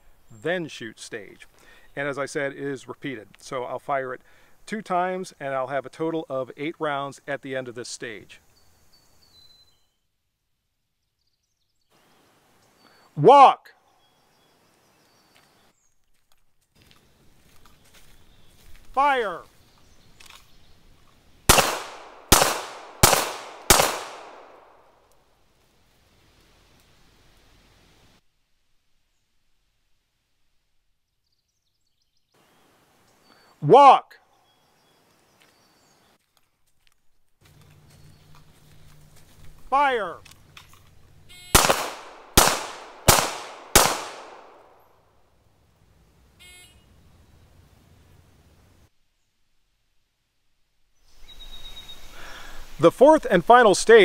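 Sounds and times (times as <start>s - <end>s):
pistol shots with echo: 21.5s - 24.9s, 41.6s - 44.9s.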